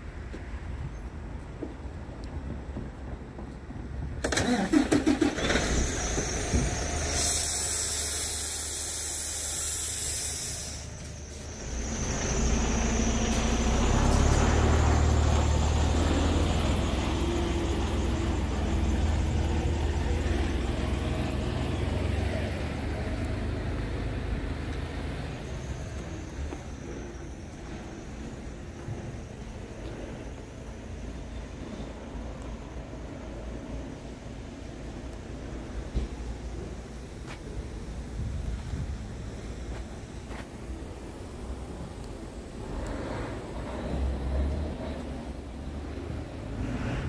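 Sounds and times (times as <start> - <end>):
diesel engine rumble: 0.0 - 47.0
high air hiss: 5.0 - 21.6, 46.3 - 47.0.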